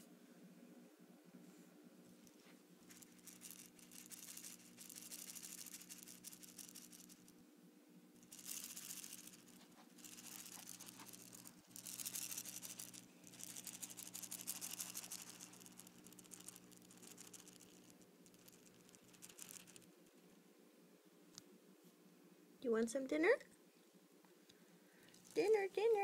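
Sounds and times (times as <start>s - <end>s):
handling rustling and scraping: 1.5s - 7.3s, 8.2s - 20.3s.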